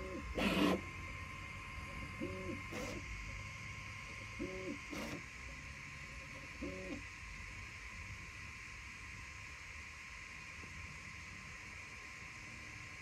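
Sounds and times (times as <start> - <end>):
printer motor tones: 0.0 - 7.2.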